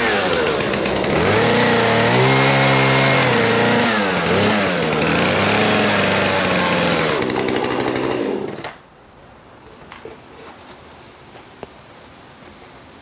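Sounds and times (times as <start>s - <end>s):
chainsaw cutting log: 0.0s - 8.8s.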